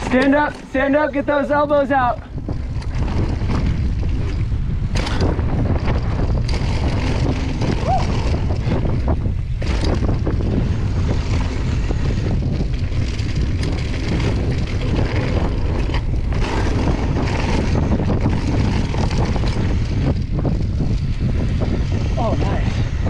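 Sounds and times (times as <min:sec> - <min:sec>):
bike clicks and rattles: 0:00.0 - 0:23.0
tyres rumbling on dirt: 0:00.0 - 0:23.0
wind rushing over microphone: 0:00.0 - 0:23.0.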